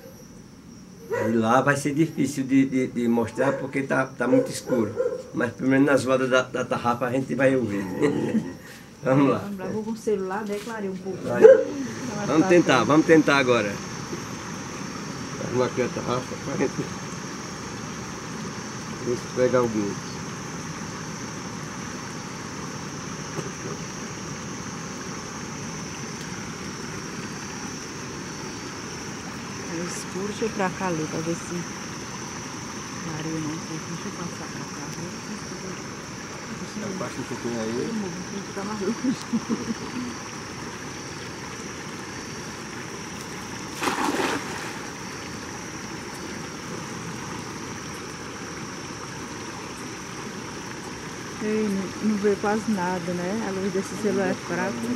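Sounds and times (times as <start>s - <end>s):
water rushing: 11.2s - 54.9s
cast net splashing into water: 43.1s - 46.4s.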